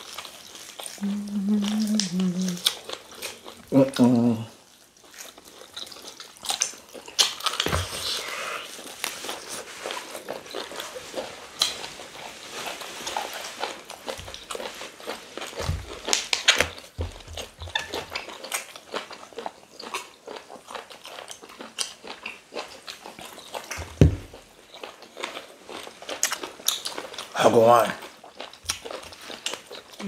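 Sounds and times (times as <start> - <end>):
wet chewing and smacking: 0.0 - 30.0
dull thumps: 23.8 - 24.3.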